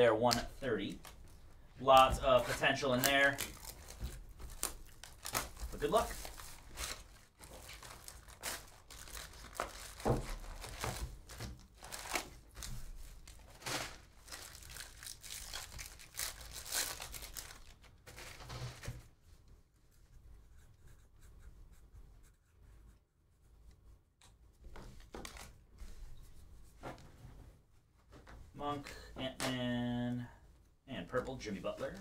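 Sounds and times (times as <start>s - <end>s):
plastic wrapping crinkling and tearing: 1.9s - 18.9s.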